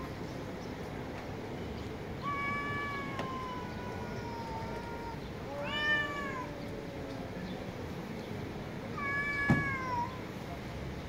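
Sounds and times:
cats yowling: 0:02.2 - 0:07.0, 0:08.9 - 0:10.2.

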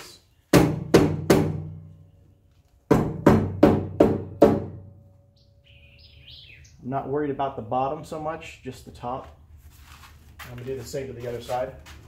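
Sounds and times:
hammer on sheet metal: 0:00.5 - 0:01.9, 0:02.9 - 0:04.9.

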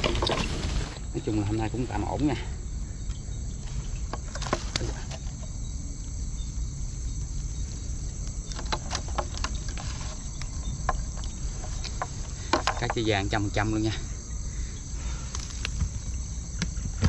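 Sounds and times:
crickets chirring: 0:00.0 - 0:17.0.

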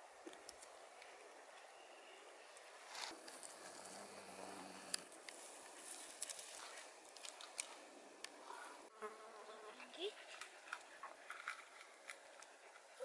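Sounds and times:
faint rustling with small ticks: 0:02.5 - 0:08.8.

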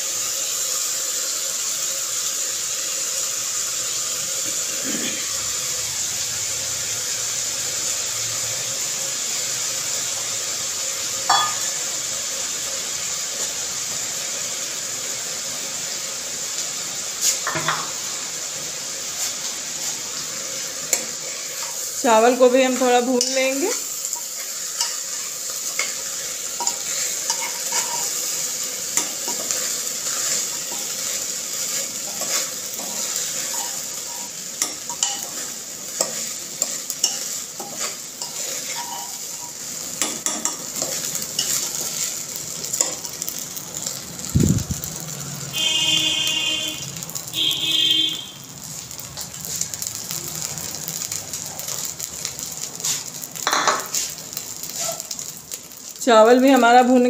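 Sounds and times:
rice sizzling in a pot: 0:00.0 - 0:57.0
metal spoon scraping a pot: 0:26.6 - 0:28.2, 0:32.1 - 0:39.6.

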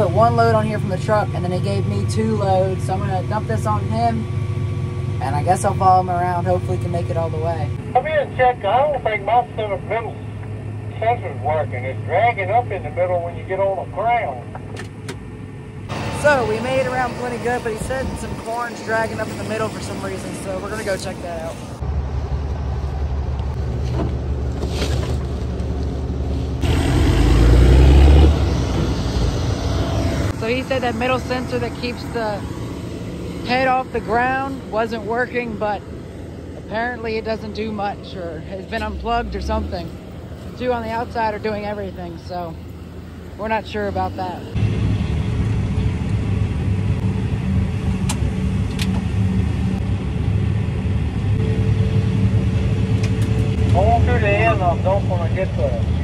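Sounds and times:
diesel harvest machinery rumbling: 0:00.0 - 0:56.0
steady higher hum: 0:15.2 - 0:24.4, 0:25.6 - 0:55.7
combine running: 0:15.6 - 0:55.7.

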